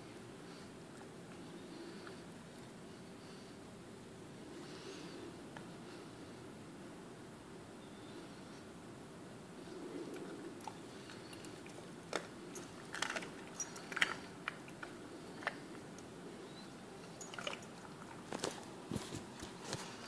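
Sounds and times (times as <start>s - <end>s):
dog chewing raw meat: 10.2s - 15.9s, 17.1s - 18.8s.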